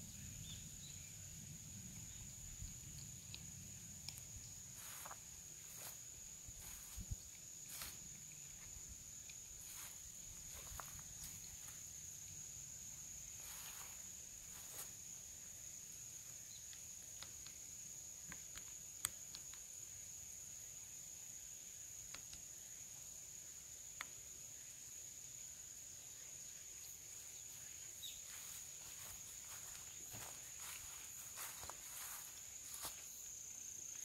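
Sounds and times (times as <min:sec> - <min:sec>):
high-pitched insect drone: 0:02.0 - 0:17.9, 0:26.0 - 0:34.0
footsteps on dry leaves: 0:06.6 - 0:08.7, 0:28.2 - 0:33.1.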